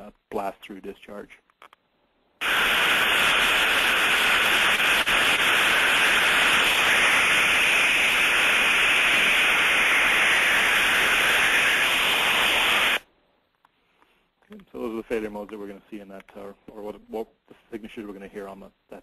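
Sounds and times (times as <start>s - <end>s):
loud steady steam hiss: 2.4s - 13.1s.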